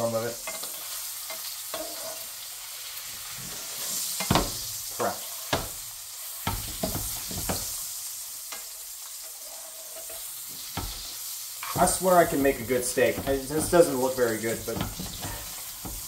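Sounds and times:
steak sizzling in a frying pan: 0.0 - 16.0.

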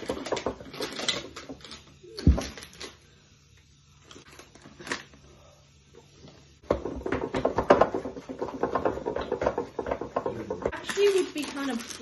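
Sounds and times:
wooden spoon beating batter in bowl: 6.6 - 10.8.

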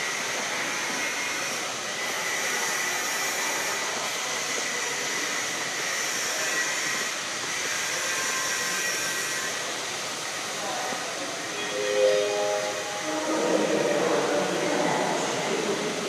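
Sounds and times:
station hall hiss and hum: 0.0 - 16.0
faint high steady tones: 11.4 - 15.6.

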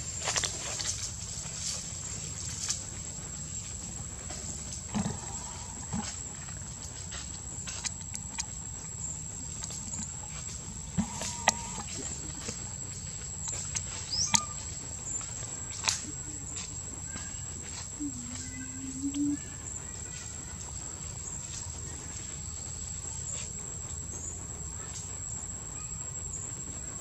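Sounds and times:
steady high whine: 0.0 - 27.0
high rising chirp: 17.0 - 20.0.

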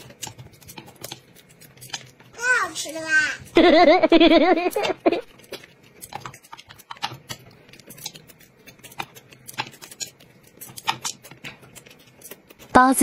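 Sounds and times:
chopsticks tapping dishes: 0.0 - 2.3, 4.5 - 12.7.

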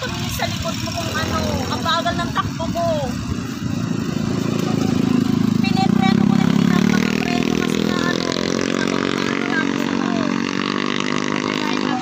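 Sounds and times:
vehicle engine passing by: 0.0 - 12.0.

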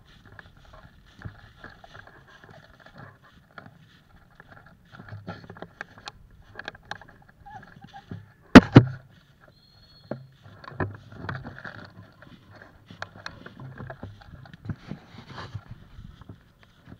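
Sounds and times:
footsteps in dry leaves: 0.0 - 5.0, 7.4 - 16.9.

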